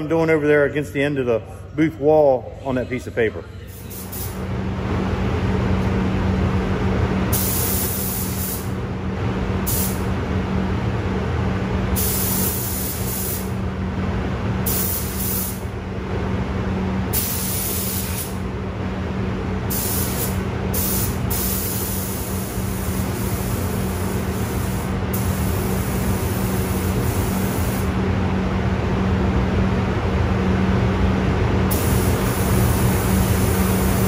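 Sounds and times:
paint booth drone: 0.0 - 34.0
paint spray gun hissing: 7.3 - 8.7, 12.0 - 13.5, 14.7 - 15.6, 17.2 - 18.4, 19.7 - 27.9, 31.7 - 34.0.

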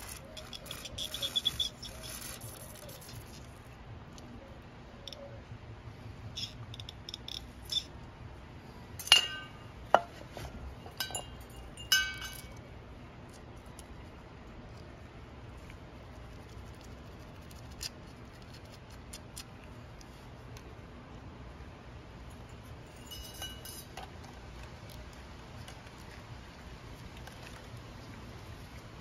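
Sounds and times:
spray can hissing: 0.0 - 3.4.

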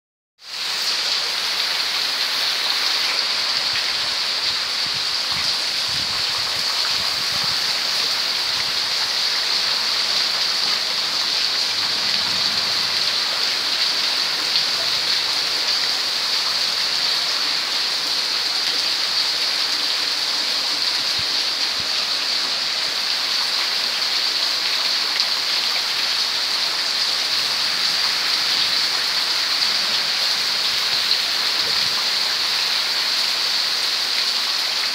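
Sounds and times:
heavy rain falling: 0.4 - 34.9
water pouring off roofs: 0.7 - 34.9.

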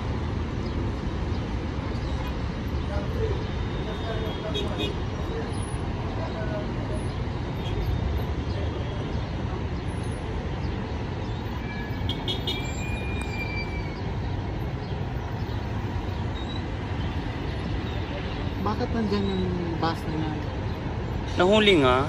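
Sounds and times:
heavy road traffic rumble: 0.0 - 22.0.

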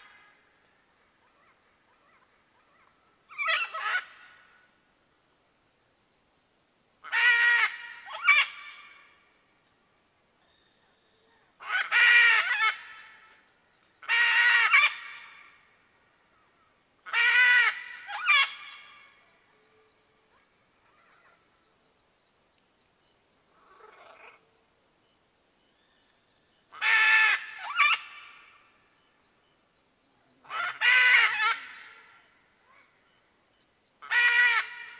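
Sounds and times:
macaw calling: 30.4 - 32.1.

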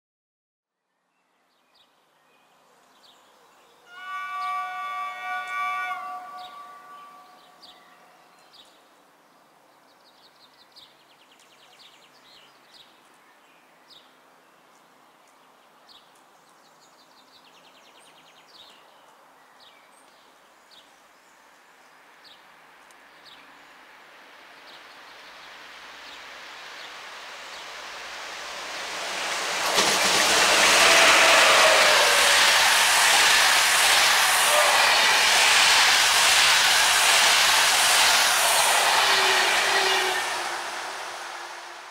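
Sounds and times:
passenger train passing: 3.9 - 8.0, 24.9 - 41.9.

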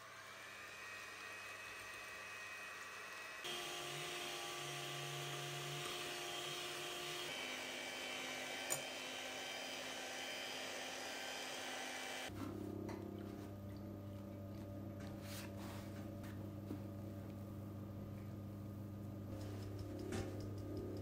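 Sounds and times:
electric hand mixer whine: 0.0 - 12.3.

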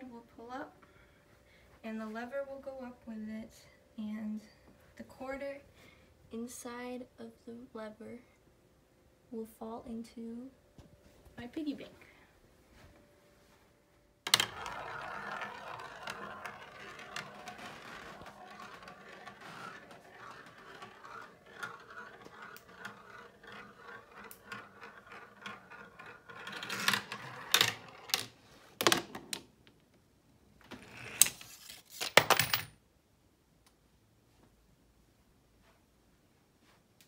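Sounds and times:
marble rolling on plastic track: 14.2 - 29.5, 30.7 - 32.6
coin clinking: 14.3 - 28.3, 31.1 - 32.7.

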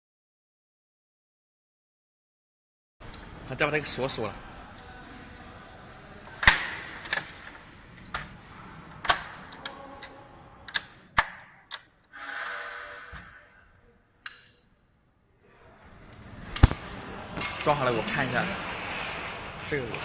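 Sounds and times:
latches clicking and snapping shut: 6.4 - 8.3, 9.0 - 12.0
scraping sound: 12.1 - 13.7, 15.7 - 20.0.

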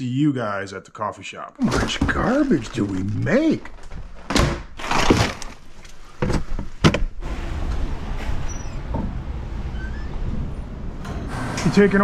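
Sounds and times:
door opening and shutting: 1.6 - 5.6, 6.2 - 12.0
rustling handling noise: 1.6 - 7.0.

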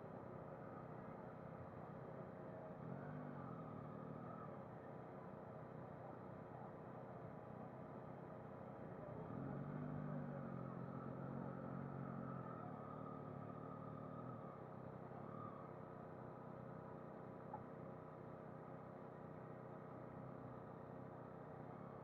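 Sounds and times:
motorcycle engines at low revs: 8.7 - 16.6.

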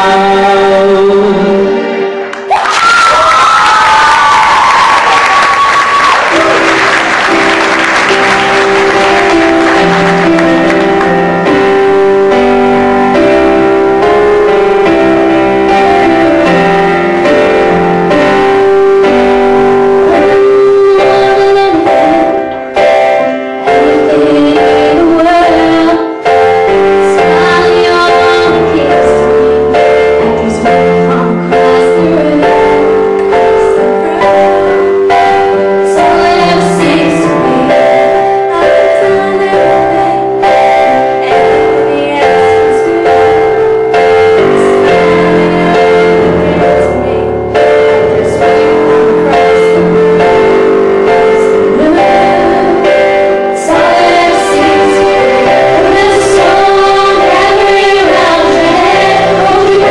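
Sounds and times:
woman singing into microphone: 0.0 - 2.1, 20.0 - 22.6, 23.7 - 26.3, 27.0 - 34.8, 35.8 - 43.6, 44.5 - 50.5, 51.5 - 59.9
live instrumental accompaniment: 0.0 - 59.9
keyboard playing sustained chords: 6.0 - 59.9.

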